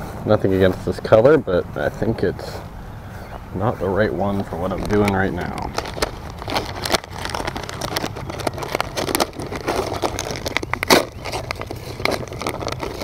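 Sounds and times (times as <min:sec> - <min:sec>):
plastic bags crinkling: 0:04.2 - 0:13.0.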